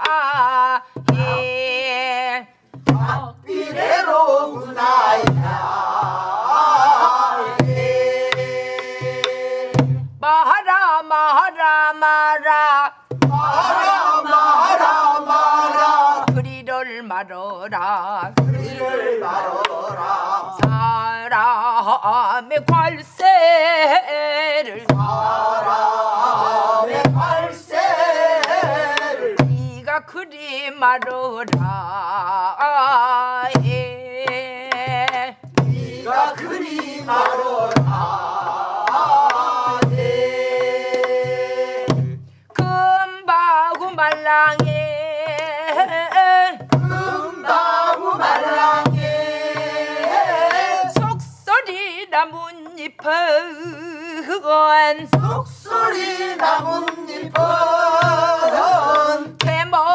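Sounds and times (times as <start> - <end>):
woman singing with vibrato: 0.0 - 19.1, 20.4 - 35.5, 36.1 - 59.9
low drum thumps: 1.0 - 1.6, 2.8 - 10.2, 13.1 - 13.9, 20.6 - 21.1, 26.3 - 29.9, 34.8 - 43.0, 43.7 - 51.4, 56.7 - 59.9.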